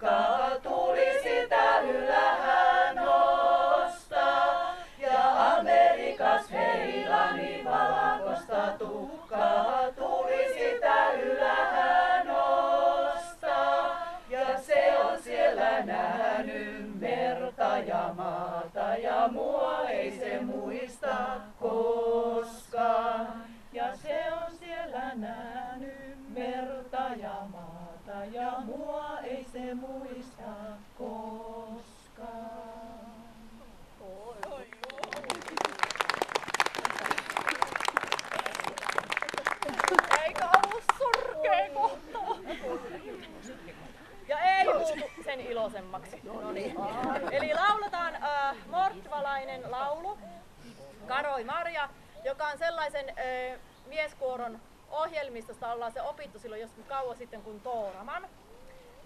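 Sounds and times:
women singing a cappella: 0:00.0 - 0:34.7, 0:40.4 - 0:52.4.

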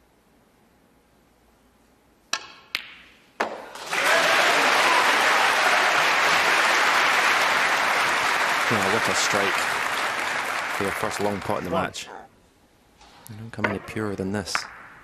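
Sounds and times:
audience applause: 0:03.8 - 0:12.0
snooker balls clicking: 0:13.6 - 0:15.0.

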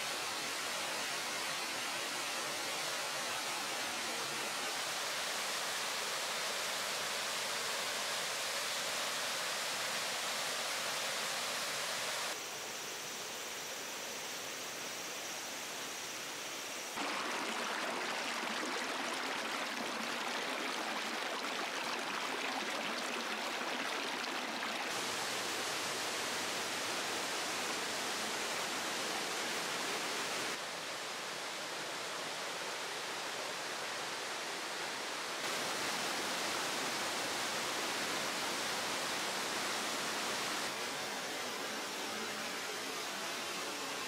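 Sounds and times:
stream rushing over stones: 0:16.9 - 0:30.6, 0:34.7 - 0:44.0.

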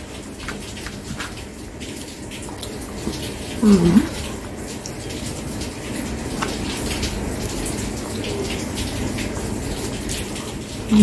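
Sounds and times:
person chewing wetly: 0:02.4 - 0:08.0.

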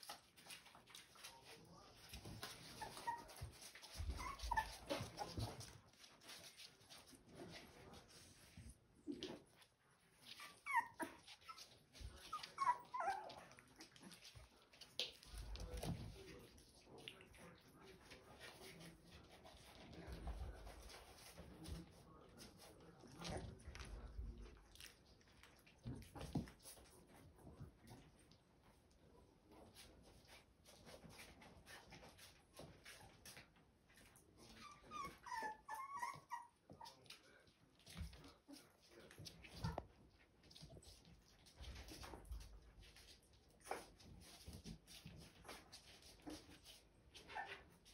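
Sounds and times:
paws scuffing on hard floor: 0:00.0 - 0:08.8
puppies whimpering: 0:02.4 - 0:05.5, 0:10.2 - 0:14.2, 0:34.4 - 0:36.9.

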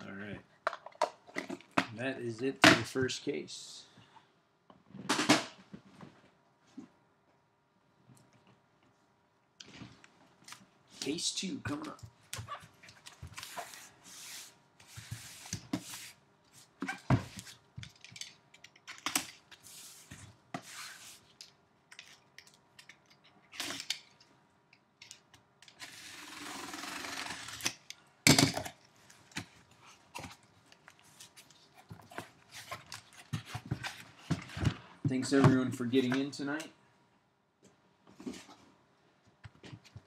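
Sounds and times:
packing tape being cut: 0:25.7 - 0:27.8.

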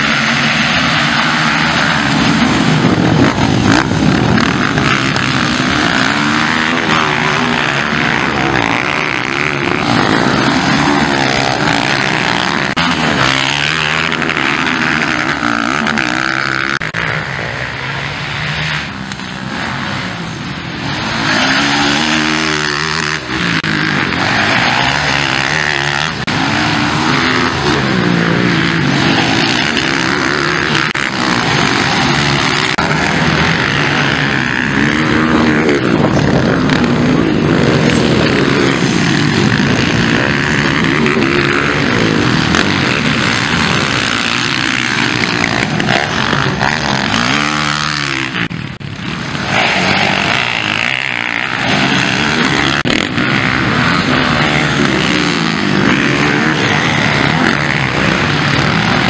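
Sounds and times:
motocross engines revving: 0:00.0 - 0:59.0.

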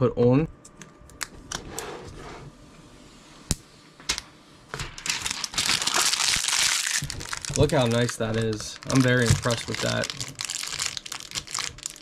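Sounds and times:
plastic film peeling and crackling: 0:04.9 - 0:12.0.

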